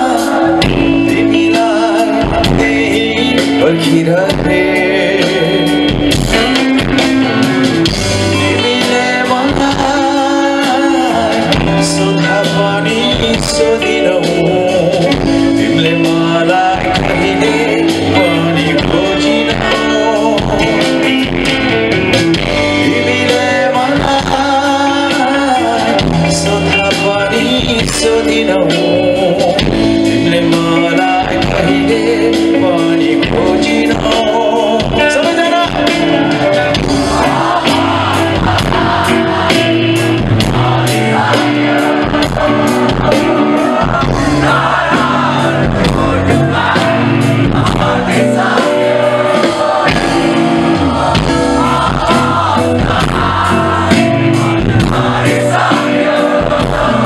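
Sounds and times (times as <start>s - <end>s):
man singing into microphone: 0.0s - 7.1s, 8.2s - 21.4s, 22.4s - 57.0s
bass guitar: 0.0s - 57.0s
drums: 0.0s - 57.0s
rock band playing live: 0.0s - 57.0s.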